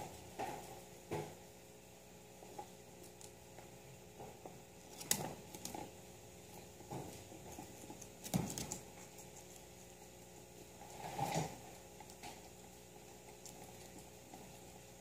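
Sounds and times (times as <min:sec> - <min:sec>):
guinea pig clicks and rustles: 0:02.3 - 0:15.0.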